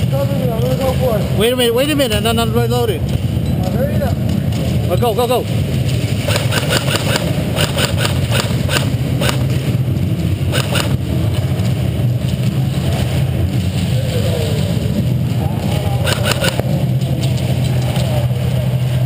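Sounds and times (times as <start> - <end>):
steady low hum: 0.0 - 19.0
airsoft guns firing clicks: 6.3 - 9.5, 10.5 - 11.0, 16.0 - 16.6.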